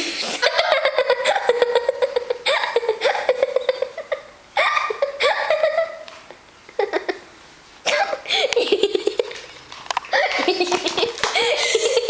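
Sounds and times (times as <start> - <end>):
high-pitched laughter and giggling: 0.3 - 6.1, 6.7 - 7.3, 8.0 - 9.4, 10.1 - 12.0.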